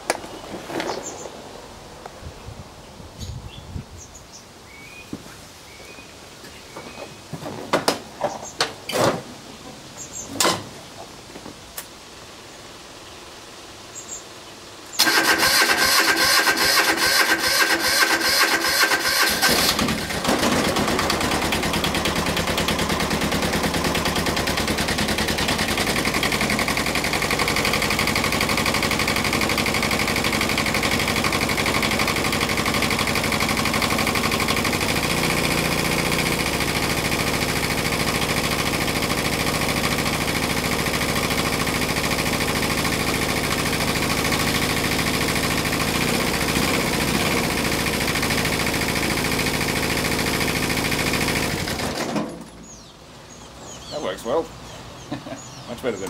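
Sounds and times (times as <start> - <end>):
diesel engine clattering: 15.0 - 52.9.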